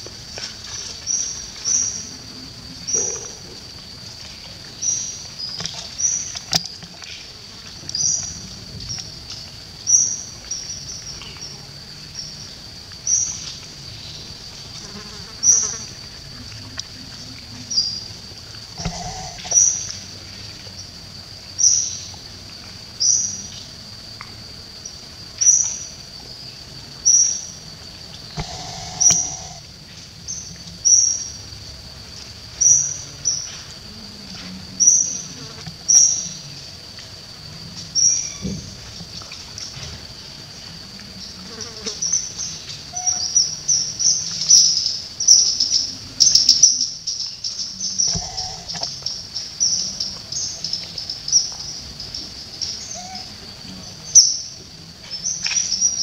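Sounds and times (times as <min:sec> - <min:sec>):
high-pitched insect drone: 0:09.9 - 0:22.0, 0:24.8 - 0:31.7, 0:41.4 - 0:56.0.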